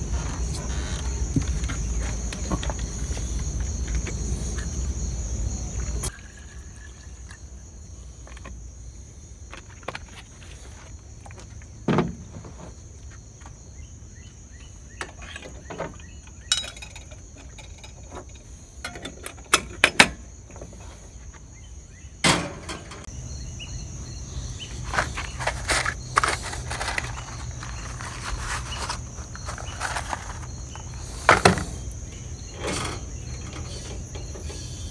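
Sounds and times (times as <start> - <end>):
coffee pot and bottle clinks: 15.1 - 19.6.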